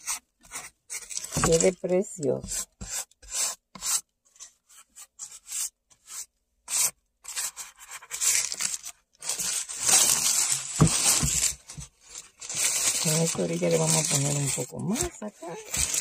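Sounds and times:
paper rustling and crinkling: 0.5 - 1.9, 7.3 - 16.0.

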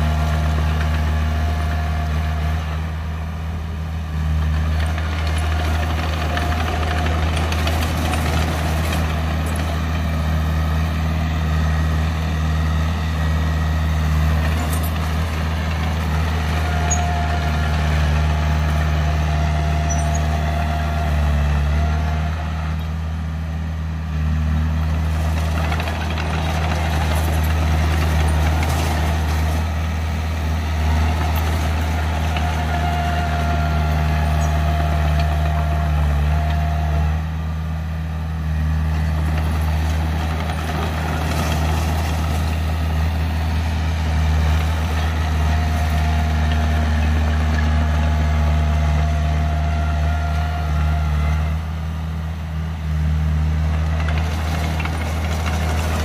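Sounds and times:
bulldozer diesel engine: 0.0 - 56.0.

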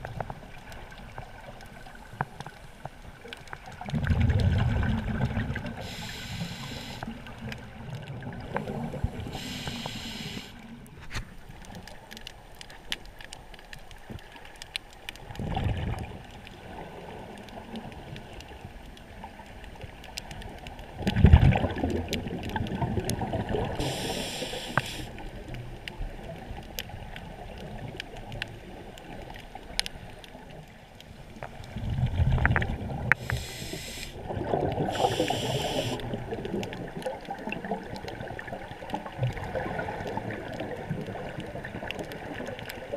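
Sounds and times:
exhaled bubbles underwater: 0.0 - 11.0, 15.2 - 30.7, 31.5 - 42.9
hissing regulator inhalations: 5.8 - 7.1, 9.1 - 10.6, 23.8 - 25.2, 33.2 - 34.2, 34.9 - 36.1
faint clicks: 5.8 - 16.6, 17.3 - 23.2, 23.8 - 42.9.

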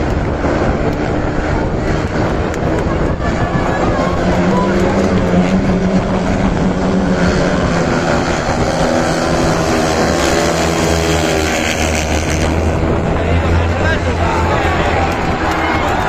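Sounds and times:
motorcycles racing: 0.0 - 16.0.

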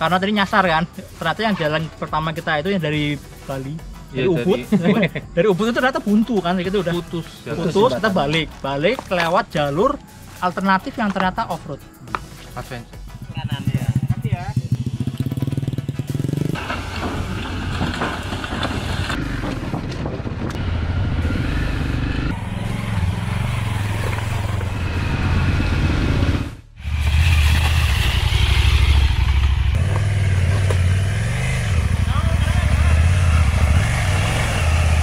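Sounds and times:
motorcycle engines revving: 12.7 - 35.0.

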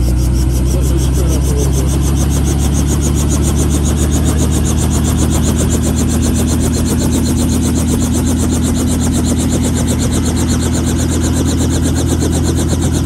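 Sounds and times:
helicopter blade chop: 0.0 - 13.0
helicopter engine hum: 0.0 - 13.0.

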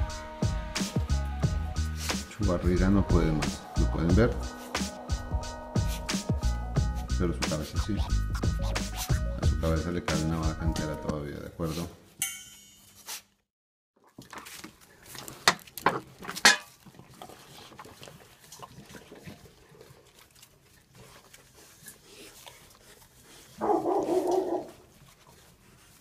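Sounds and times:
puppies eating from metal bowl: 14.0 - 26.0
puppy barking: 23.6 - 24.8.

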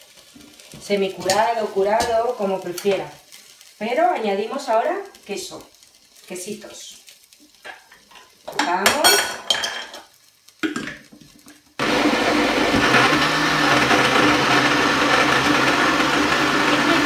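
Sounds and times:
blender motor running: 11.8 - 17.0.

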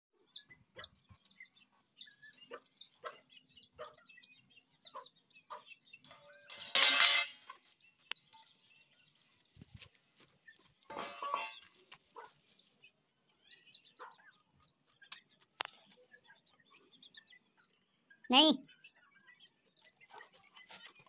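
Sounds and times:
chickens chirping: 0.2 - 21.0
metal bowl clattering on ground: 6.1 - 7.5, 10.9 - 11.7.

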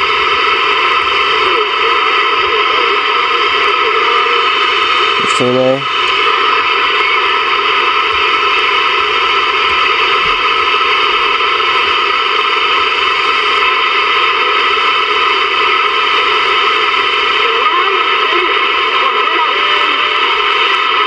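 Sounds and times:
radio static hiss: 0.0 - 21.0.

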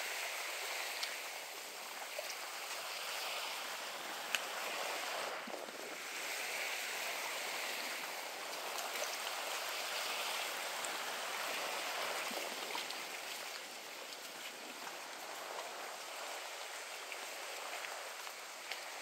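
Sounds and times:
lagoon water: 0.0 - 19.0
faint light ticks: 0.8 - 1.2, 4.3 - 4.5, 17.1 - 19.0.

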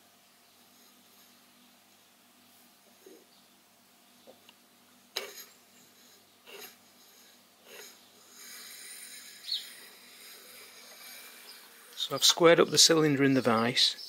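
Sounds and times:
scriber scratching metal: 5.2 - 13.6.

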